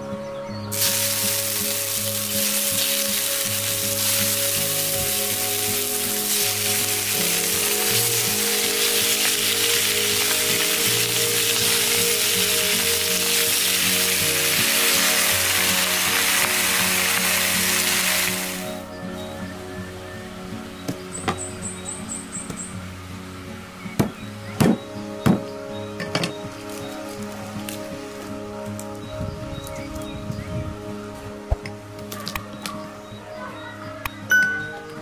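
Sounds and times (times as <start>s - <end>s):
meat sizzling in hot oil: 0.7s - 18.8s.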